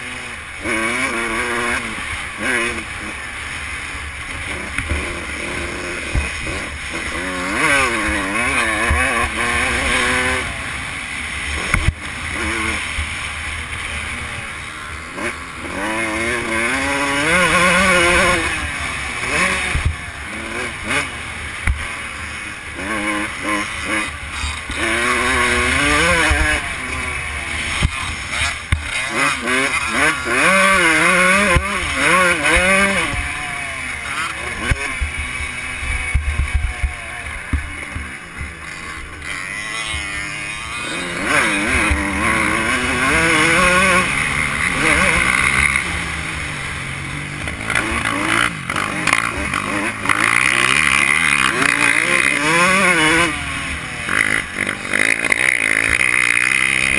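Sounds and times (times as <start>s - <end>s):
dirt bike engine revving: 0.0s - 56.9s.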